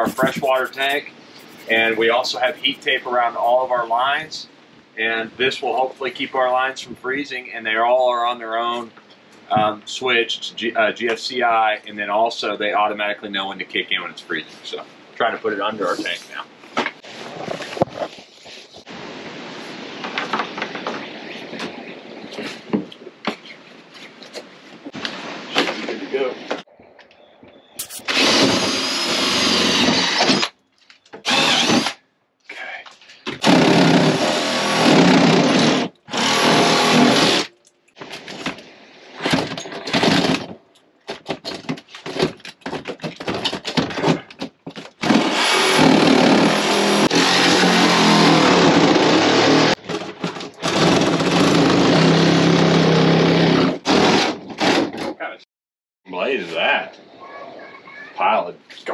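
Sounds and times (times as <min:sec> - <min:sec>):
power tools running in bursts: 0:45.2 - 0:49.7.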